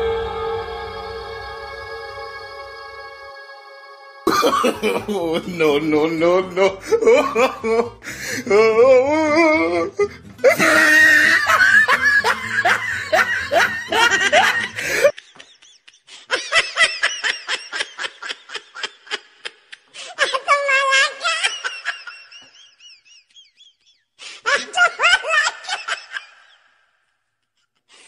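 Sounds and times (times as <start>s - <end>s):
background music: 0.0s - 15.1s
high-pitched giggling laugh: 4.3s - 5.4s, 10.4s - 23.7s, 24.5s - 26.6s
rapid laughter: 4.3s - 5.4s, 6.6s - 8.4s, 10.0s - 26.7s.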